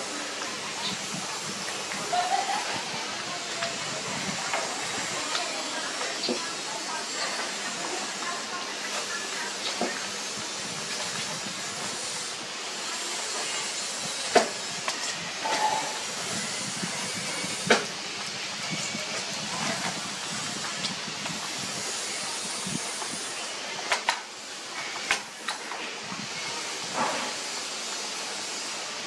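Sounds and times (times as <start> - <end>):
steady hiss: 0.0 - 29.0.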